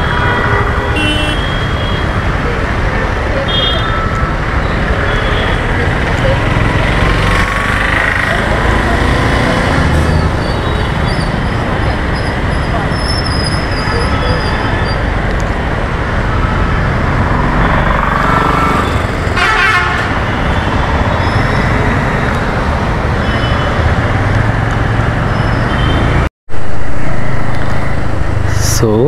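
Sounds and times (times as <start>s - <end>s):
vehicle horn: 0.0s - 2.0s, 3.5s - 4.0s, 19.4s - 20.2s
road and wind noise: 0.0s - 29.0s
motorcycle engine: 5.0s - 10.9s, 16.3s - 26.0s.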